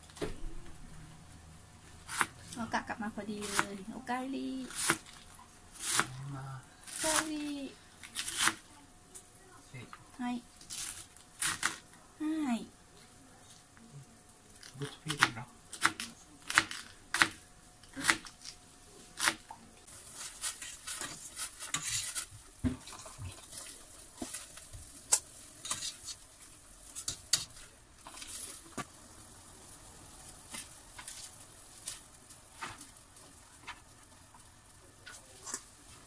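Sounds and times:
knife chopping on cutting board: 0:05.8 - 0:06.1.

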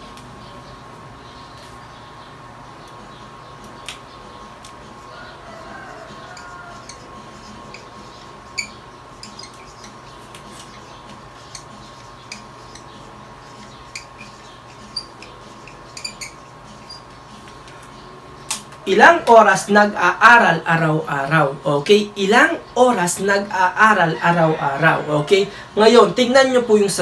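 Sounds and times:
faint steady hum: 0:00.0 - 0:27.0
marker pen tapping and squeaking: 0:05.9 - 0:18.8
markers clicking: 0:08.6 - 0:17.8.

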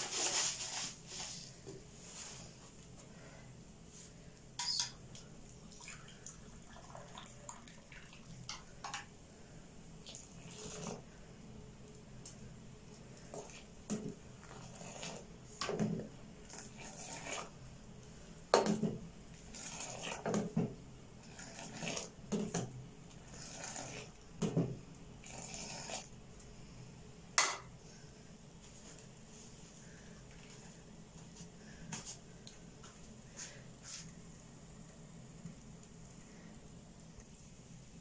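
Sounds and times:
tea pouring and splashing: 0:05.1 - 0:08.7, 0:10.0 - 0:11.0, 0:19.4 - 0:20.6, 0:21.2 - 0:22.2, 0:23.2 - 0:24.2, 0:25.2 - 0:26.1.

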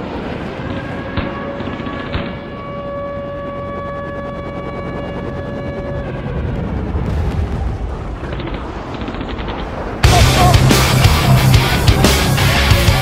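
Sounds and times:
deep low bass rumble: 0:09.6 - 0:13.0
heavy rock music: 0:10.0 - 0:13.0.

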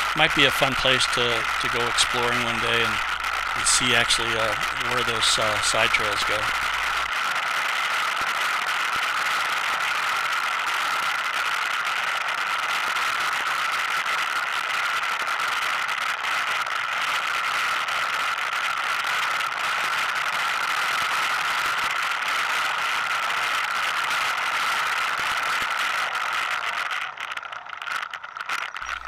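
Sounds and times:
atv engine running: 0:00.0 - 0:07.1
rattle and clatter over rocks: 0:00.0 - 0:29.0.

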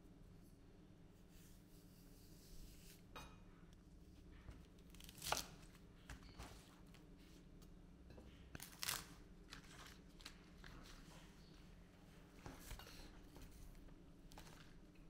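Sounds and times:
knife cutting spring onion: 0:04.9 - 0:05.6.

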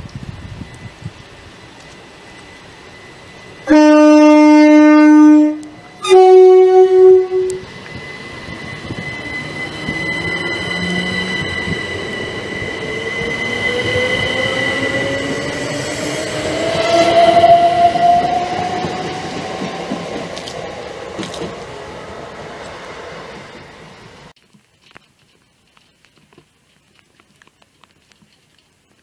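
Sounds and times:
train rumbling past with whine: 0:00.0 - 0:24.4
train two-tone horn: 0:02.8 - 0:15.4, 0:16.0 - 0:21.6.

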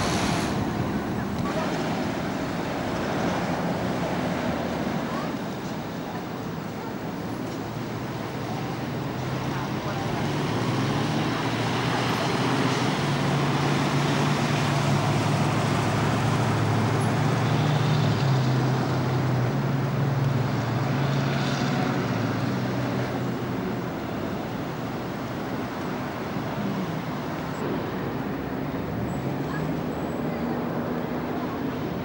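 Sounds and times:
diesel bus engine pulling away: 0:00.0 - 0:32.0
traffic noise: 0:00.0 - 0:32.0.

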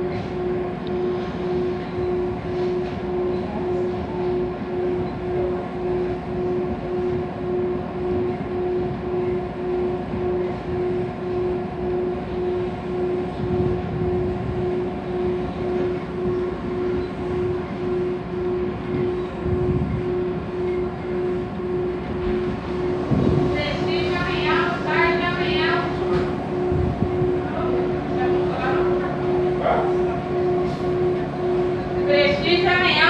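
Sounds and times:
pulsing train hum: 0:00.0 - 0:33.0
train wheels rumbling on rails: 0:08.1 - 0:33.0.

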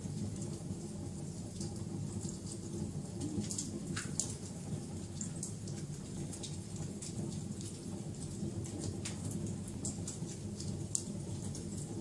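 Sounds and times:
wood fire crackling: 0:00.0 - 0:12.0.

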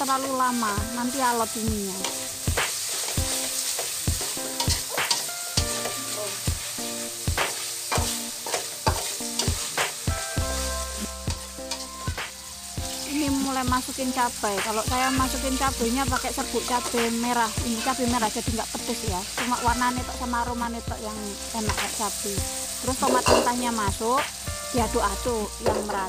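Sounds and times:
frying oil hissing: 0:00.0 - 0:26.0
spatula scraping a wok: 0:02.0 - 0:13.0, 0:14.8 - 0:20.3.

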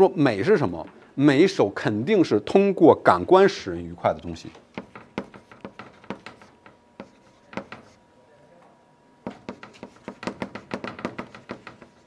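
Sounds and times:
chalk tapping on blackboard: 0:04.7 - 0:08.0, 0:09.2 - 0:12.0.

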